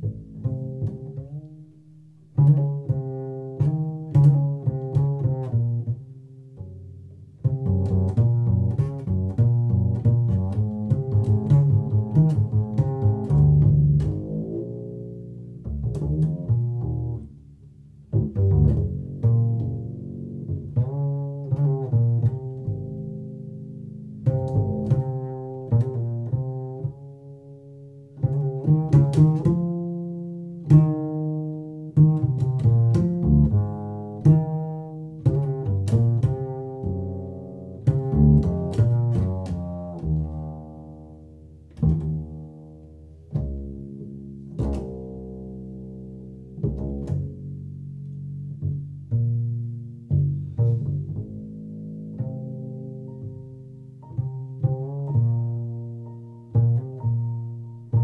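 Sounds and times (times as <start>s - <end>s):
plucked double bass: 0.0s - 58.0s.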